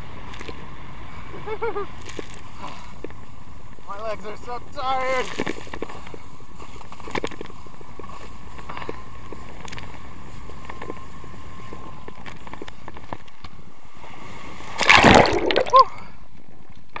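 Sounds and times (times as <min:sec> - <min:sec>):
water rushing and spray: 0:14.6 - 0:15.9
loud splash into lake: 0:14.8 - 0:16.0.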